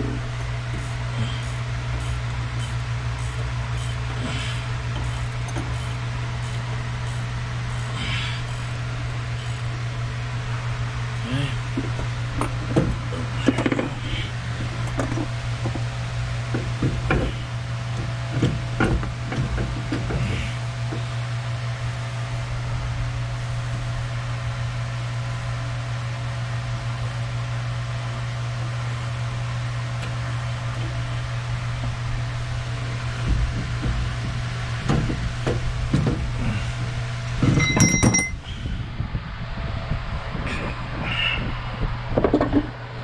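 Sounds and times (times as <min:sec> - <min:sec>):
low hum: 0:00.0 - 0:43.0
metal knocks: 0:37.4 - 0:38.4
metal clinks with ringing tone: 0:37.6 - 0:38.4.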